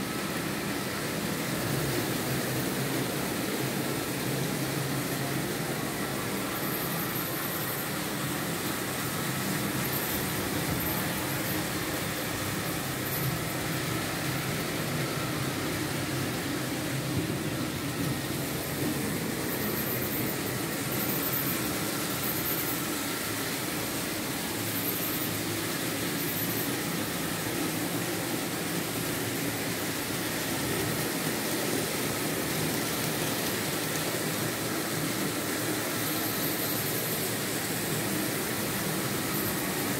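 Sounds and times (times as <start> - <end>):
model trains whirring on track: 0.0 - 39.9.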